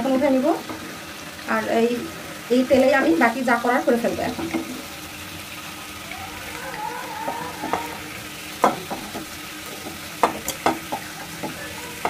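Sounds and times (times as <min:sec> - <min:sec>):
oil sizzling in a frying pan: 0:00.0 - 0:12.0
spatula knocking against pan: 0:07.2 - 0:08.0, 0:08.6 - 0:12.0.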